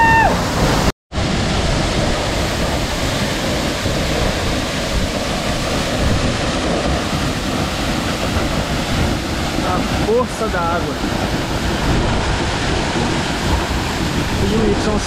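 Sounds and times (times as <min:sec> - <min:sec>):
waterfall rushing onto rock: 0:00.0 - 0:15.0.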